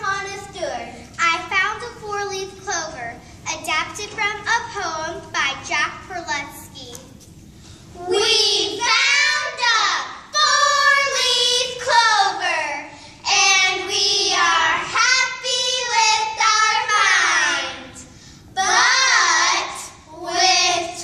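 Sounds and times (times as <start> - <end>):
girls singing in unison: 8.0 - 17.9, 18.6 - 21.0.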